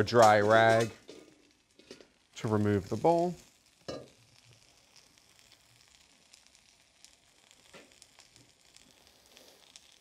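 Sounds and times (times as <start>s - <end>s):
chicken sizzling on grill pan: 0.0s - 10.0s
light crackles and ticks: 0.0s - 10.0s.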